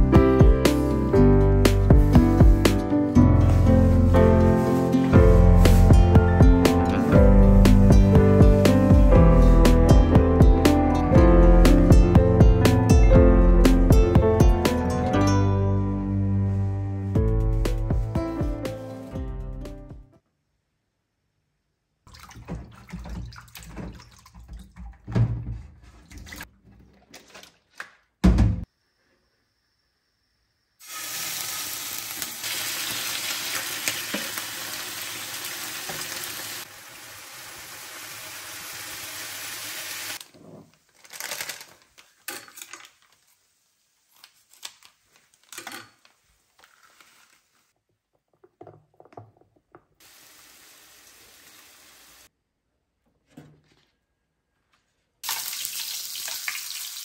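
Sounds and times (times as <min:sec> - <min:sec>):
knocks and thumps of handling: 0:22.4 - 0:28.6, 0:48.1 - 0:50.0, 0:53.0 - 0:54.0
tap water running into sink: 0:30.9 - 0:36.6, 0:55.2 - 0:57.0.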